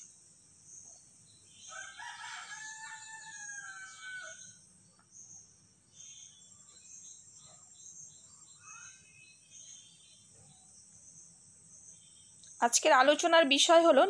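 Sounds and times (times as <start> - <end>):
insects chirping: 0.0 - 14.0
rooster crowing: 1.7 - 4.6.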